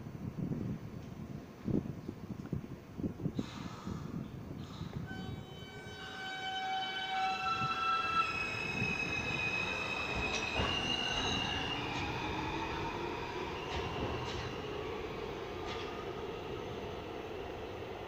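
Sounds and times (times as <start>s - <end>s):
wheels rumbling on rail: 0.0s - 18.0s
subway train motor whine: 4.6s - 18.0s
wheels clacking over rail joints: 9.7s - 14.9s, 15.5s - 16.2s.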